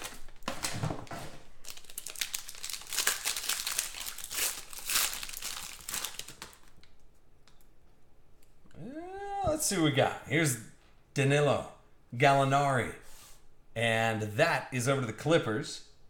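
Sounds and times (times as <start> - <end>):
foil wrapper crinkling and tearing: 0.0 - 7.0.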